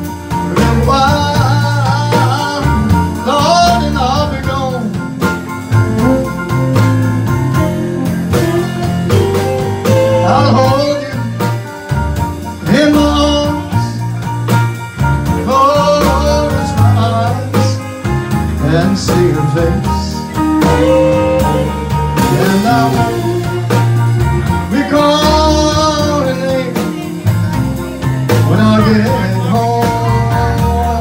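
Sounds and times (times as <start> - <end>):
acoustic guitar: 0.0 - 31.0
bass line: 0.0 - 31.0
electric keyboard: 0.0 - 31.0
man singing into a microphone: 0.4 - 5.2, 9.8 - 11.7, 12.6 - 14.2, 15.2 - 31.0.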